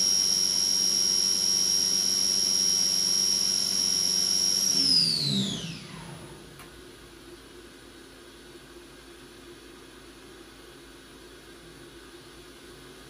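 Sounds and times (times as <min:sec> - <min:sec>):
machine spindle whining: 0:00.0 - 0:06.6.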